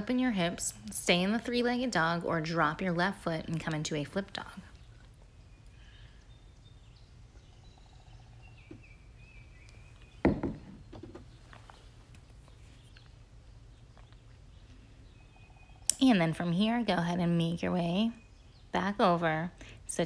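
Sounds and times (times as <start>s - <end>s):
faint birds chirping: 0.0s - 20.0s
sudden thump: 10.2s - 10.8s.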